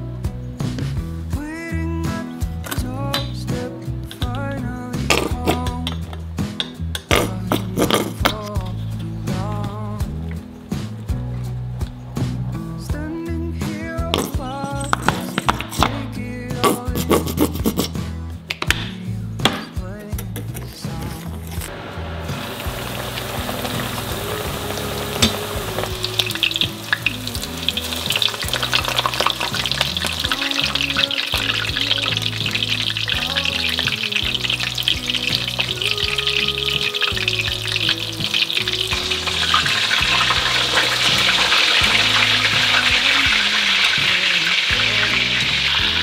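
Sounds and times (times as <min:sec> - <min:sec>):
soft background music: 0:00.0 - 0:46.0
cutlets sizzling in hot oil: 0:21.7 - 0:46.0.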